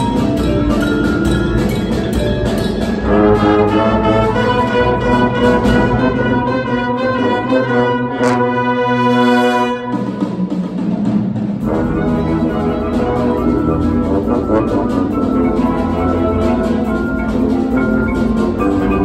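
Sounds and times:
brass ensemble playing: 3.0 - 10.9, 11.6 - 19.0.

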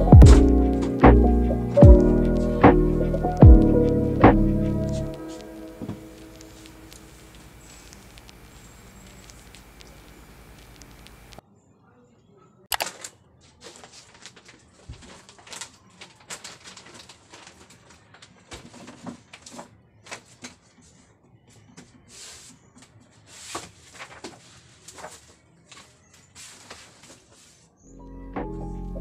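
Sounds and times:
plastic packaging crinkling: 5.1 - 11.4, 12.8 - 20.4.

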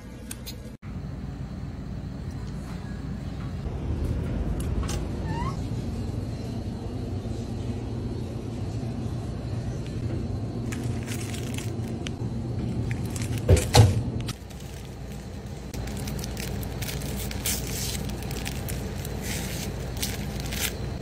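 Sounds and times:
refrigerated shelf humming: 0.0 - 21.0.

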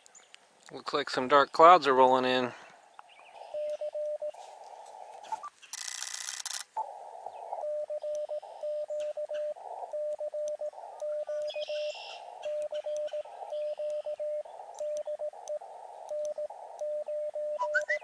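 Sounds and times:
receiver hiss: 2.2 - 18.0
morse code tone: 3.5 - 4.4, 7.6 - 18.0.

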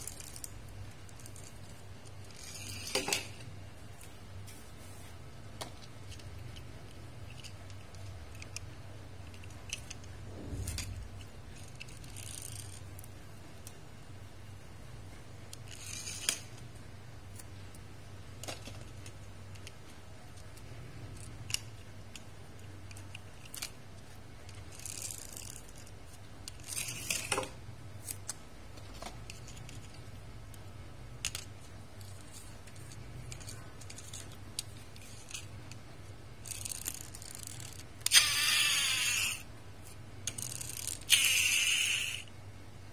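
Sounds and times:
toy car wheels whirring: 0.0 - 0.5, 1.1 - 3.4, 10.7 - 13.1, 15.5 - 16.6, 24.5 - 27.4, 31.2 - 35.8, 36.4 - 39.5, 40.2 - 42.3
toy cars clicking and knocking: 0.0 - 3.4, 5.7 - 13.1, 15.5 - 16.7, 18.4 - 23.8, 24.4 - 27.5, 31.2 - 39.4, 40.2 - 42.3.

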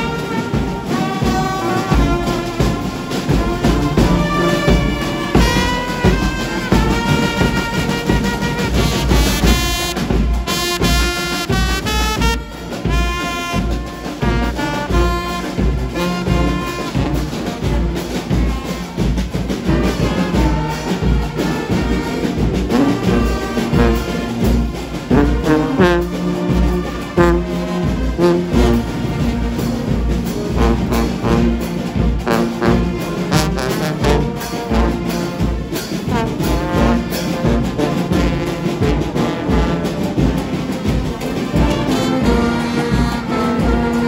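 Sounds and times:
steady low beat: 0.0 - 18.3
brass band playing: 0.0 - 44.0.

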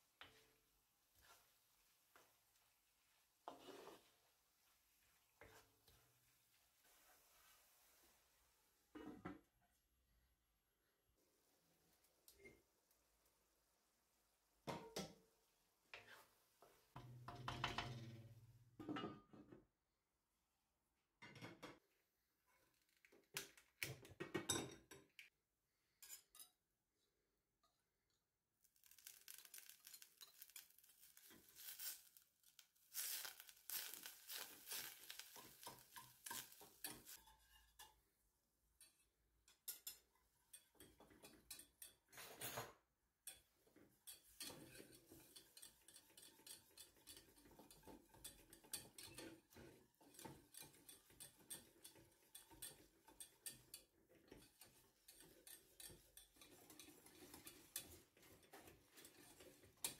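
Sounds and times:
wire whisk scraping a steel saucepan: 28.8 - 38.0, 39.7 - 42.2, 43.3 - 59.9.

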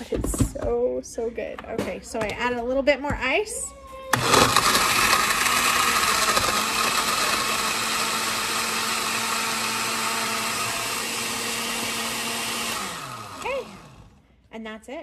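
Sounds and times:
blender crushing ice: 4.1 - 14.1.

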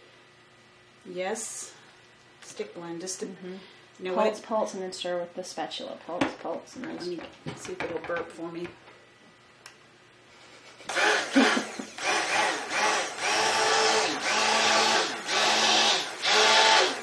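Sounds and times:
stick blender motor whir: 10.9 - 17.0.

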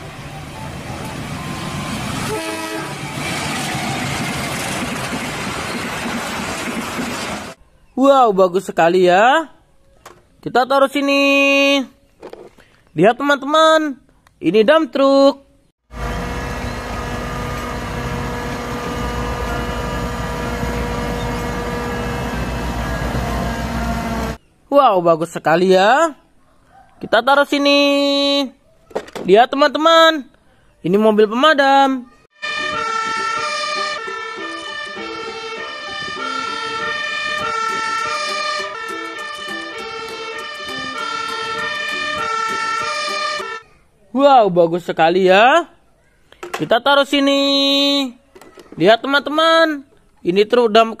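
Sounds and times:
two-tone fire engine siren: 0.4 - 4.0, 15.9 - 24.4, 32.4 - 43.6
diesel truck engine running: 15.9 - 24.4.

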